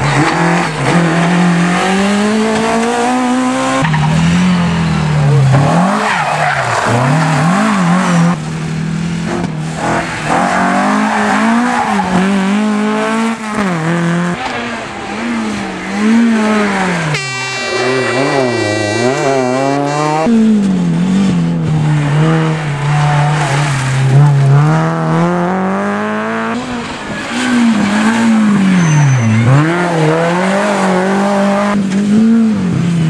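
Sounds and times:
rally car engines revving: 0.0s - 33.0s.

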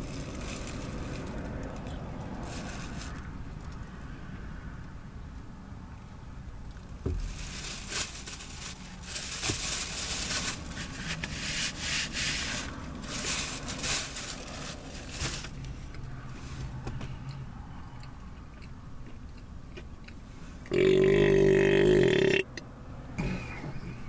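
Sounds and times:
chewing with crackly rustling: 15.5s - 20.8s.

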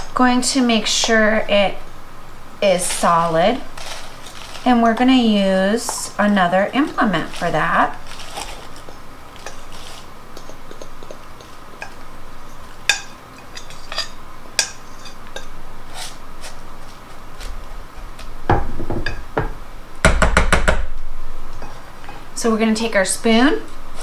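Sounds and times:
spatula scraping glass bowl: 2.7s - 6.1s, 6.8s - 16.6s.

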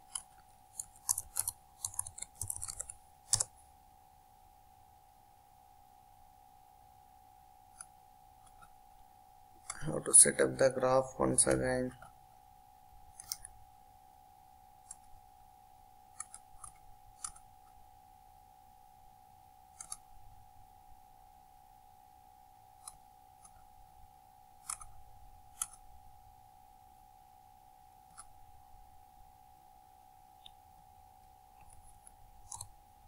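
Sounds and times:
computer mouse clicking: 0.0s - 3.5s, 13.1s - 13.5s, 14.8s - 15.1s, 16.1s - 17.4s, 19.7s - 20.1s, 22.8s - 23.6s, 24.6s - 25.8s, 28.1s - 28.4s, 31.6s - 32.8s
faint high hum: 0.0s - 33.0s.

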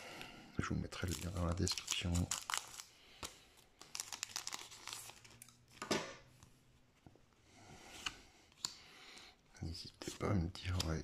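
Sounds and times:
plastic wrapper crinkling: 0.9s - 5.6s.

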